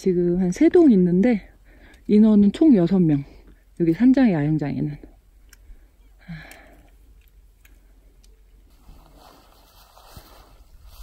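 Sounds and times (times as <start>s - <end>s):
hiss of falling snow and wind: 8.7s - 11.0s.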